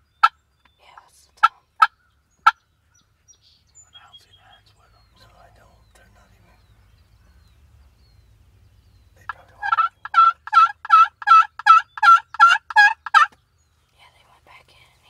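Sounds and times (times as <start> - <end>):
turkey yelps: 9.3 - 13.3.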